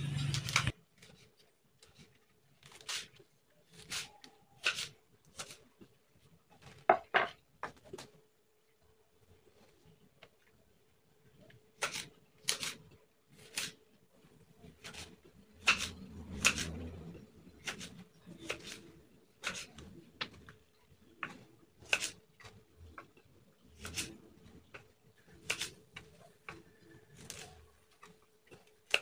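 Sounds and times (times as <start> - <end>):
knife knocking on wooden board: 6.9 - 7.3.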